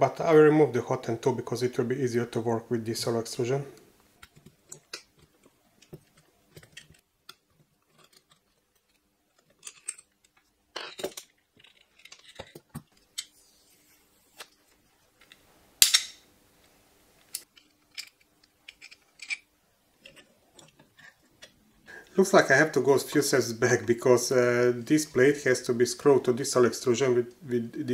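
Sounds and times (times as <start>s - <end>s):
metal parts and tools clinking: 7.8s - 13.3s, 17.4s - 21.6s.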